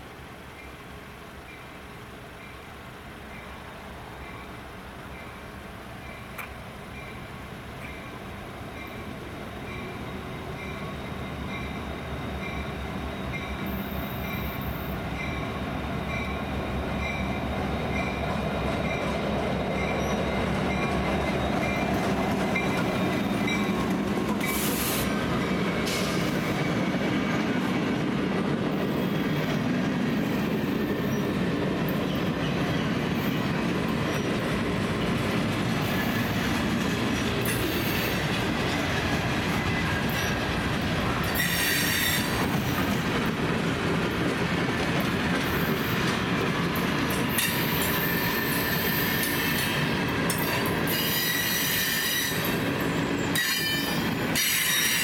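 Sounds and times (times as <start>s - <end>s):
diesel locomotive: 0.0s - 55.0s
wheel-and-rail noise: 8.7s - 55.0s
high-pitched wheel squeals: 50.5s - 55.0s.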